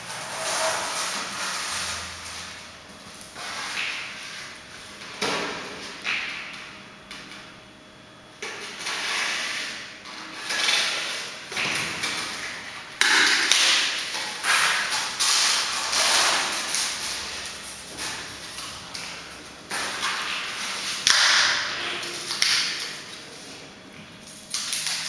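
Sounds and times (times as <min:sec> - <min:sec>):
underlay scraping and rasping: 0:00.0 - 0:02.6.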